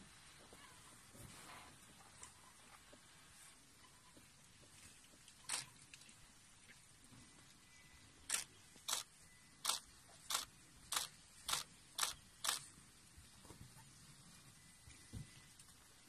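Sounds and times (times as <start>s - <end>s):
camera shutter clicking: 8.3s - 12.6s.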